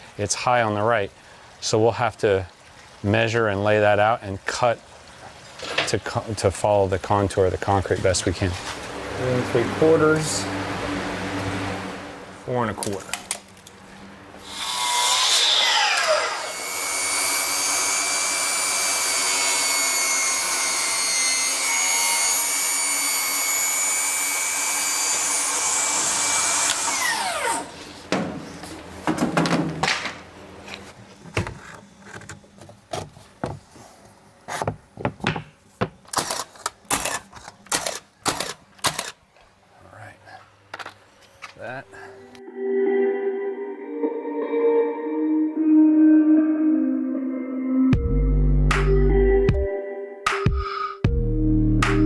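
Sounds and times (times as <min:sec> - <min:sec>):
table saw cutting: 0:14.4 - 0:27.8.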